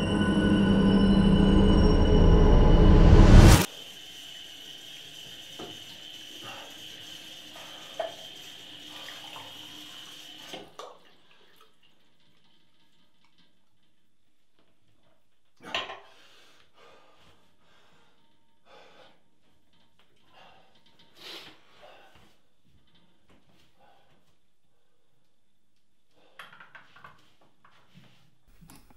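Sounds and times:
knocks and rustles of handling: 0:26.3 - 0:28.9.

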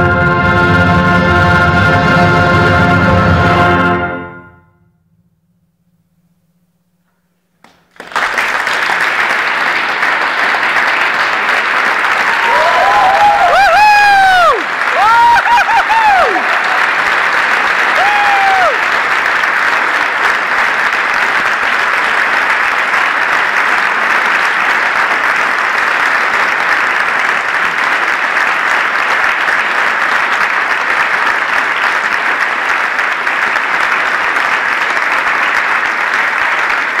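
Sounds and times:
audience applauding: 0:07.6 - 0:37.0.

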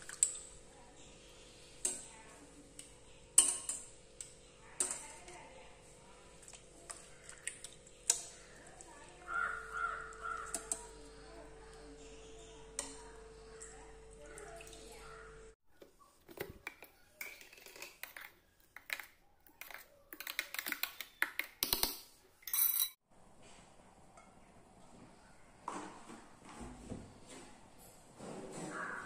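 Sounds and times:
metal tongs and jar clinking: 0:22.4 - 0:23.0.

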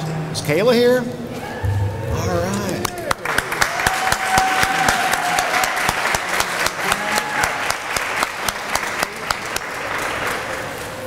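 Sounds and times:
audience clapping: 0:02.7 - 0:11.0.

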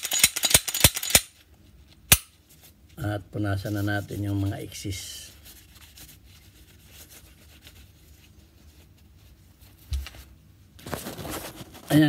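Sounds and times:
tissue paper rubbing: 0:03.6 - 0:12.0.

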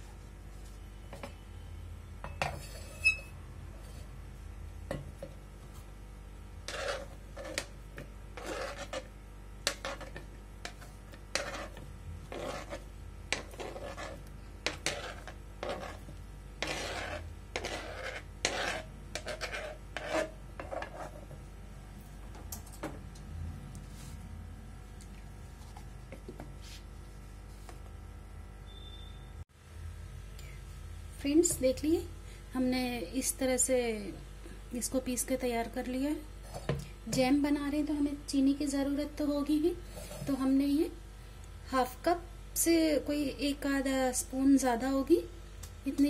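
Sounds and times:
scraping on plastic cutting board: 0:06.7 - 0:07.7, 0:08.4 - 0:09.1, 0:09.7 - 0:21.3.

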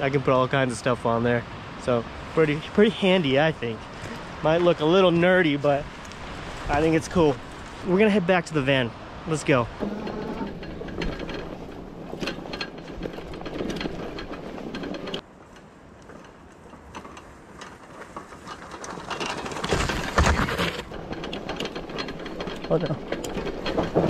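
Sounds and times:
tyres crunching over gravel: 0:09.4 - 0:24.0
bike frame rattling: 0:09.6 - 0:24.0.

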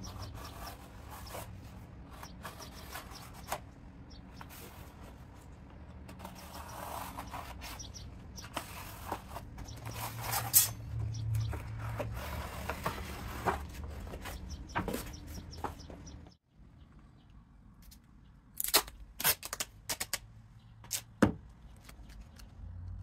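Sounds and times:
cardboard rubbing and scraping: 0:00.1 - 0:03.7, 0:06.1 - 0:10.6, 0:11.4 - 0:15.9.

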